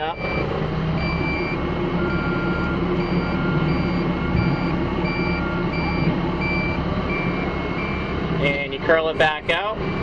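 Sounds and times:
warning beeper: 0.0 - 8.6
excavator engine and hydraulics: 0.0 - 10.0.

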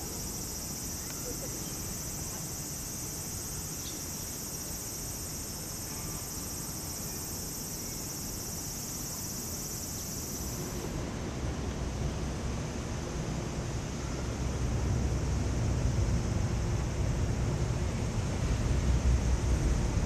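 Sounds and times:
cicadas buzzing: 0.0 - 10.9.

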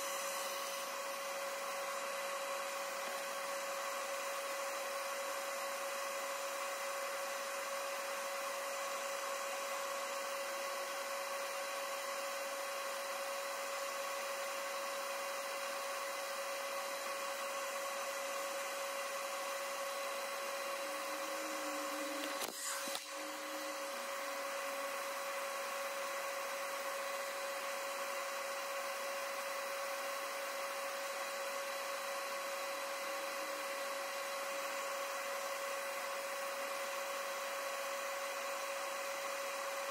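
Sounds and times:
small motor whining: 0.0 - 4.4, 18.0 - 27.7
brief click: 22.2 - 23.1.

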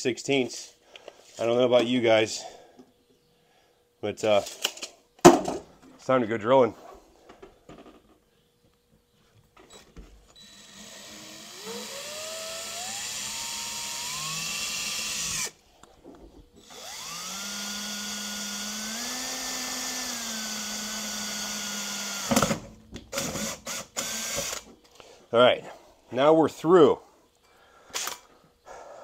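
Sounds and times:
power drill whining: 9.7 - 15.6, 16.6 - 22.5, 23.1 - 24.7.

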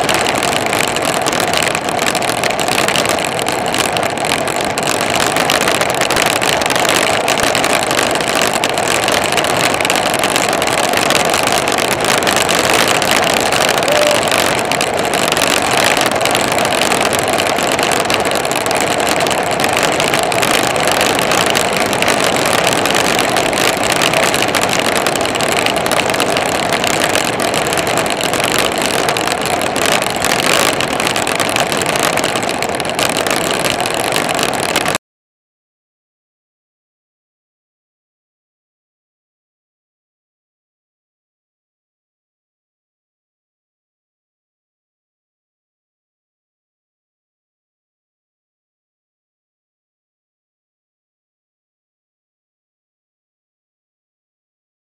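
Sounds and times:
tyre noise on asphalt: 0.0 - 35.0.

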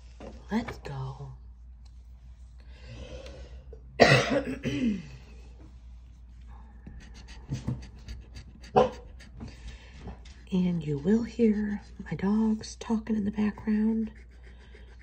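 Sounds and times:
scratching lottery ticket: 6.9 - 11.0, 13.7 - 15.0.

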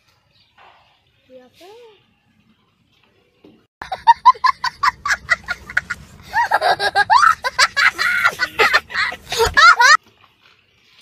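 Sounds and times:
young child laughing hysterically: 3.8 - 10.0.

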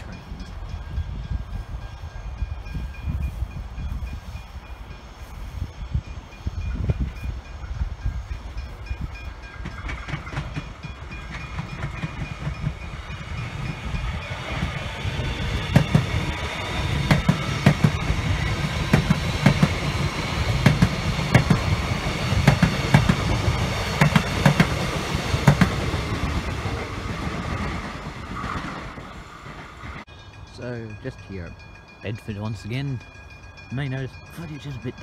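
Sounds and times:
electric train passing: 0.0 - 35.0
wheels clicking over rail joints: 9.3 - 13.8, 15.5 - 31.1.

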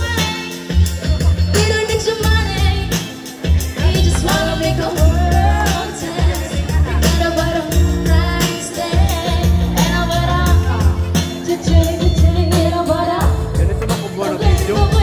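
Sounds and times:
amplified music with heavy bass: 0.0 - 15.0
women singing pop song: 0.0 - 15.0.

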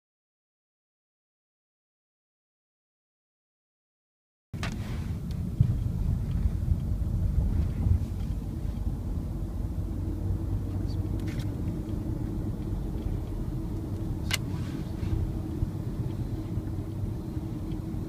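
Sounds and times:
car engine and road rumble: 4.6 - 18.0.

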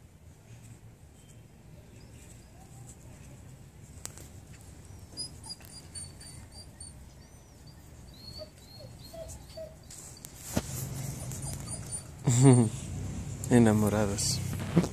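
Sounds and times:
puppy whimpering: 4.8 - 12.9.

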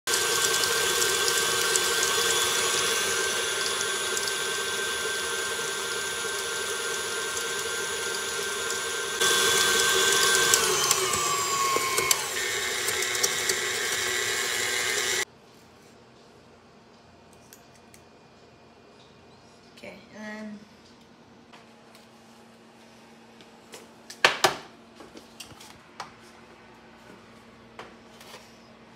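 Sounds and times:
stand mixer motor whining: 0.1 - 15.2.

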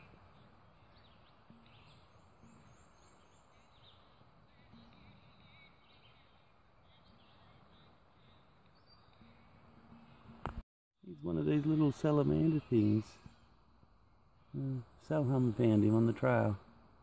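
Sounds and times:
soft high bird chirps: 0.0 - 10.4.

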